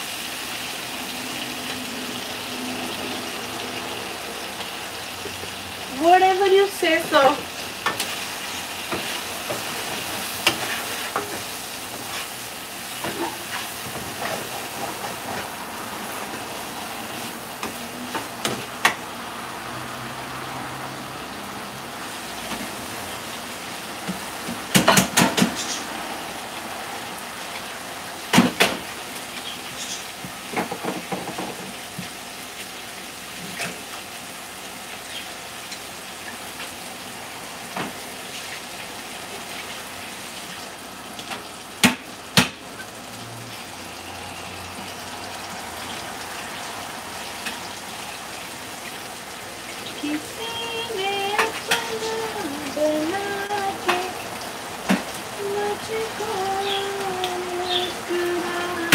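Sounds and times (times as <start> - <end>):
food sizzling in a frying pan: 0.0 - 58.9
kitchen clatters: 24.5 - 25.9.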